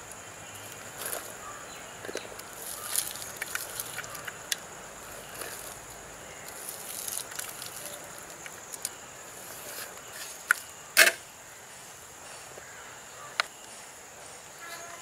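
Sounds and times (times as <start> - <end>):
onions rustling: 2.2 - 10.5.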